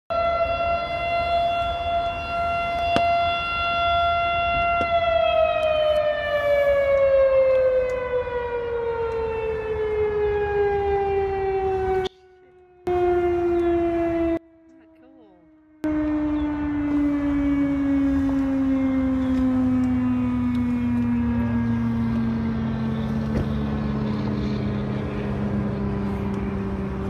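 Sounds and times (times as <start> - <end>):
motor-driven siren wailing: 0.1 - 27.0.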